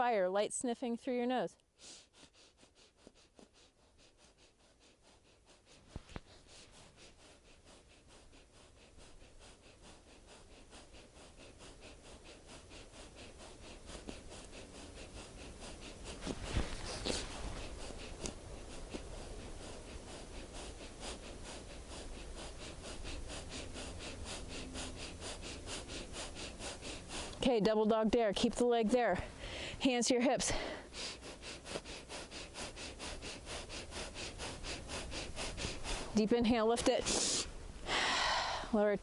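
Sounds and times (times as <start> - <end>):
rapid forceful nasal exhalations: 1.6 - 38.9.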